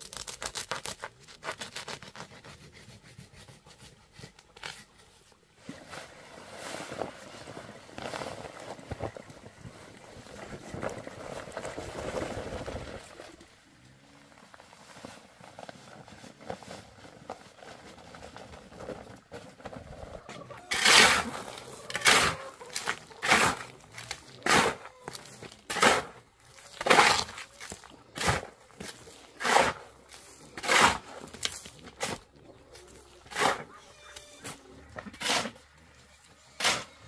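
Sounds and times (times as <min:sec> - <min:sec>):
shovel scraping gritty sand: 0:20.6 - 0:37.0.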